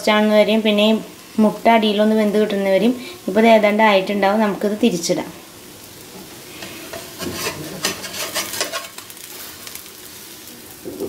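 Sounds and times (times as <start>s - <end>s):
omelette sizzling in butter: 0.0s - 11.0s
spatula scraping and knocking pan: 6.6s - 9.2s.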